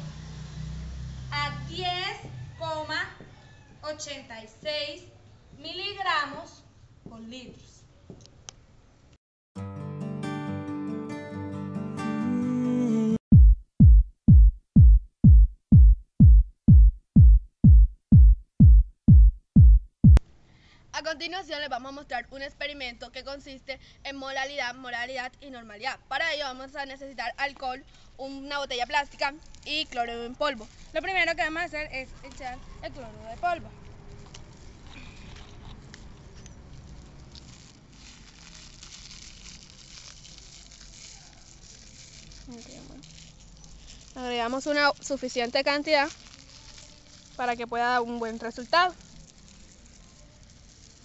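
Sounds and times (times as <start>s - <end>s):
electronic kick drum thumps: 13.3s - 20.2s
powder pouring into plastic bottle: 34.2s - 44.4s, 45.0s - 51.0s.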